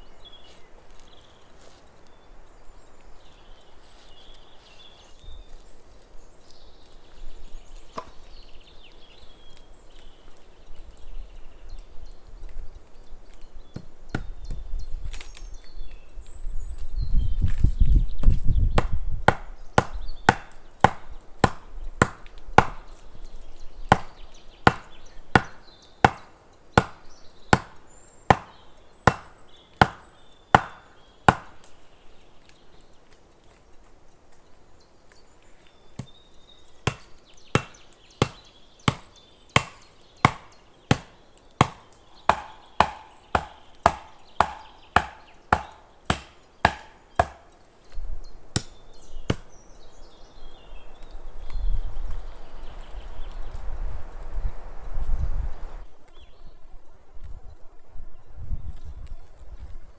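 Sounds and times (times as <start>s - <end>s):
wood being chopped: 7.9s - 8.2s, 13.7s - 15.3s, 18.3s - 23.0s, 23.9s - 31.8s, 36.0s - 36.2s, 36.8s - 47.5s, 48.5s - 49.5s.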